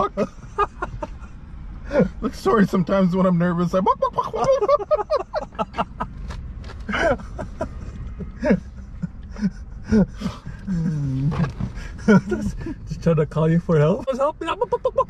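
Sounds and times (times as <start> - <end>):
men laughing: 0.0 - 2.2, 3.8 - 12.9, 14.5 - 15.0.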